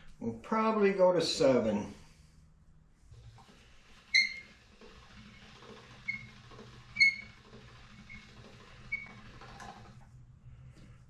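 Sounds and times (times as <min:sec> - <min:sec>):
pasta machine crank rumble: 0:03.1 - 0:10.3.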